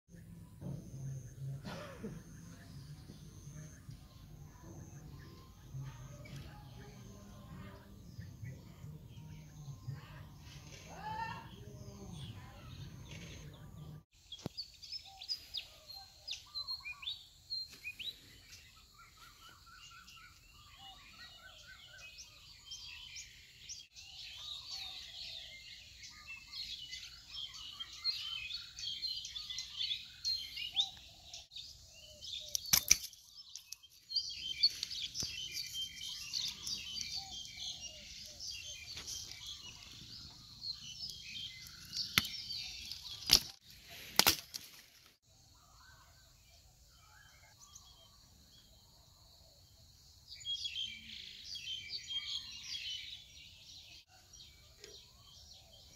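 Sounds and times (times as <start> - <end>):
birds chirping: 0.1 - 55.9
pruning shears snapping: 32.5 - 33.9, 41.6 - 45.0.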